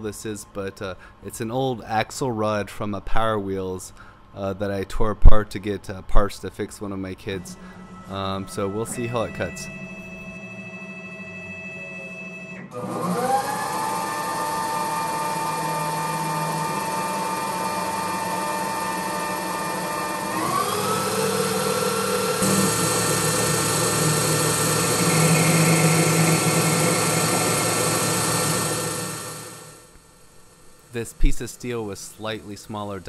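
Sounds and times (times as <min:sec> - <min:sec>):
machine running noise: 0:07.2 - 0:33.0
lathe spindle whine: 0:07.3 - 0:33.0.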